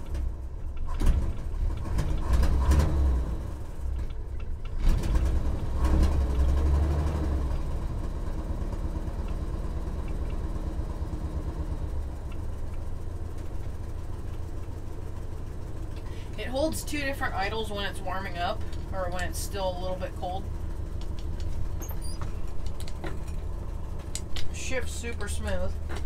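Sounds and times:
car engine revving and idling: 0.0 - 26.0.

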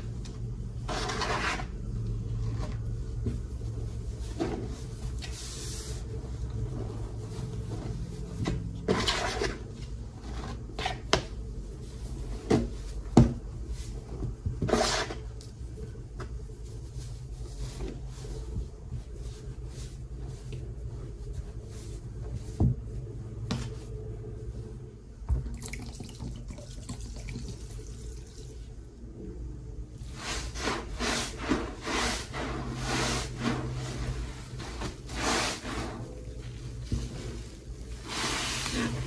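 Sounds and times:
liquid pouring: 25.3 - 28.7
sponge squelching: 30.1 - 39.0.

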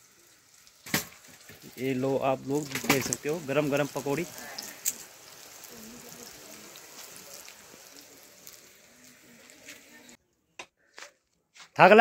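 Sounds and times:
batter sizzling in hot oil: 0.0 - 10.2.

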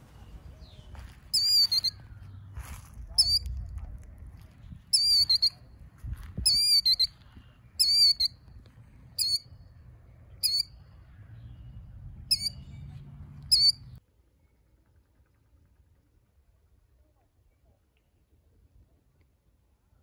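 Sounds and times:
shrill bird calls: 0.6 - 2.5, 4.9 - 5.7, 6.4 - 8.5, 9.2 - 11.6, 12.3 - 12.9, 13.5 - 14.0.

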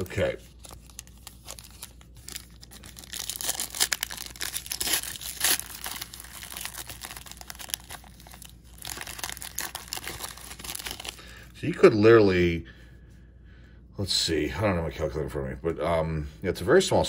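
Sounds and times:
wrapper crinkling and tearing: 0.0 - 11.5.

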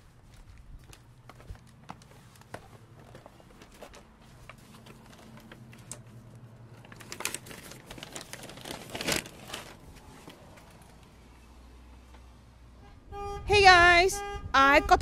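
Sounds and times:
footsteps on pavement: 0.0 - 4.7.

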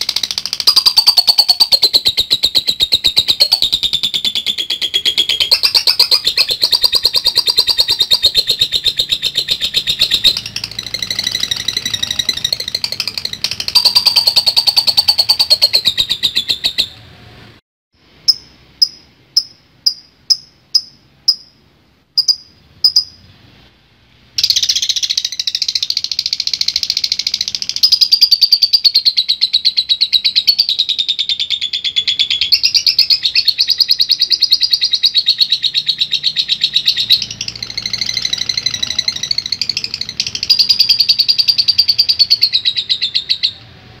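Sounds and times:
lovebird chattering trill: 0.0 - 17.0, 18.2 - 21.6, 22.2 - 23.2, 24.4 - 43.6
lovebird sharp ticks: 18.3 - 21.5.

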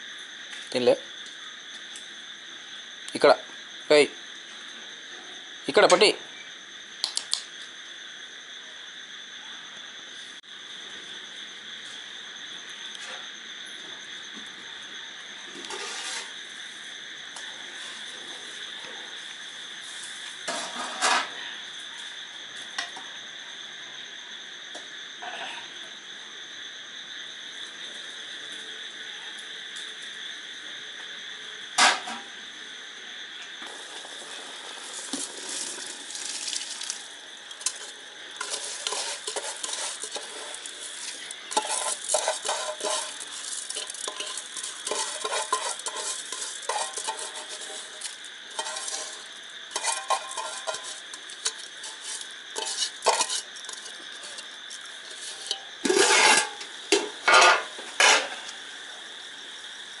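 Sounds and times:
crickets chirping: 0.0 - 60.0
cooking pots clinking and scraping: 15.6 - 16.4, 20.4 - 21.4, 31.8 - 32.3, 33.7 - 58.6.

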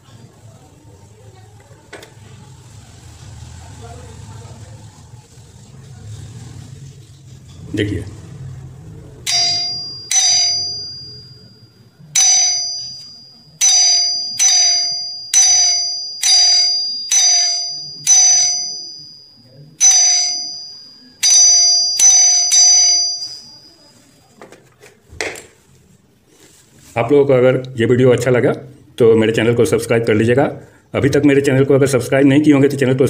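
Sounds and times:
electric doorbell chime: 9.2 - 24.1.

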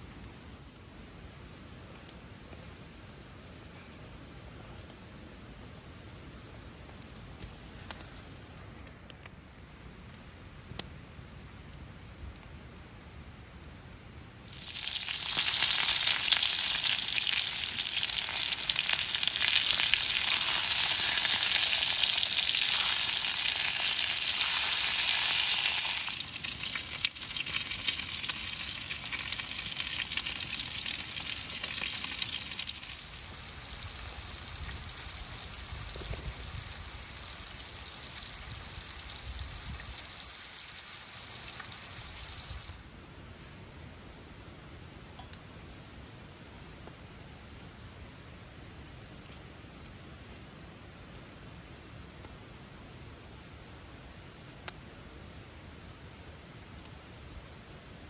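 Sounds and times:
food sizzling in a hot pan: 14.4 - 42.8.

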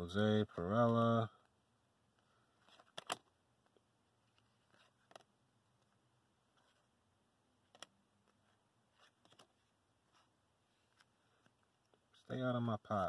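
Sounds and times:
trading cards flipped by hand: 2.6 - 3.2, 7.7 - 12.0.

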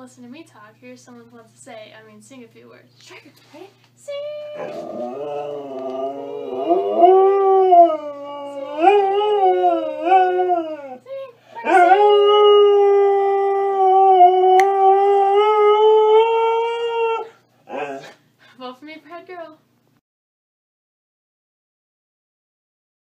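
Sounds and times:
dog howling: 4.5 - 11.0, 11.6 - 18.2.

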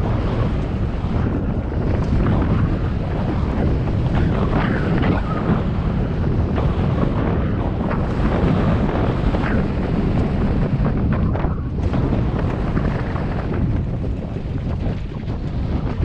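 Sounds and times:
rumble of tyres on dirt: 0.0 - 16.0
wind buffeting microphone: 0.0 - 16.0.

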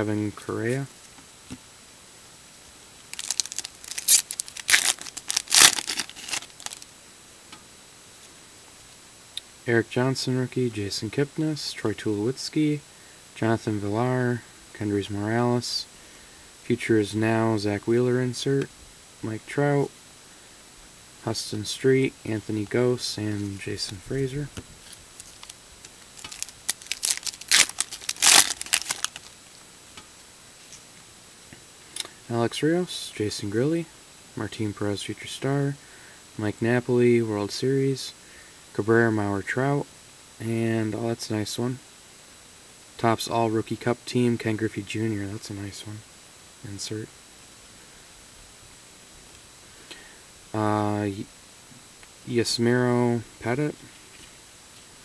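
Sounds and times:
foil wrapper crinkling and tearing: 3.1 - 6.9, 24.8 - 29.4.

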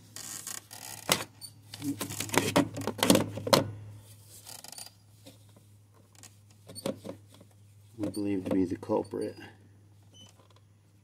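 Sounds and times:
low steady hum: 0.0 - 11.0
handling clicks and knocks: 1.0 - 3.8.

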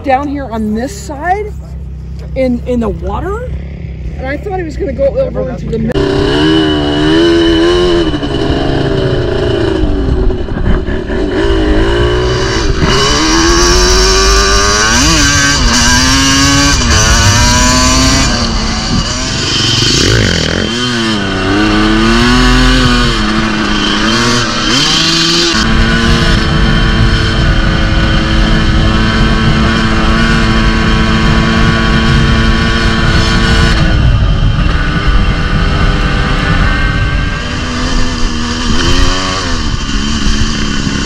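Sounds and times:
dirt bike engine revving: 2.4 - 41.0
rushing noise: 5.9 - 30.7.

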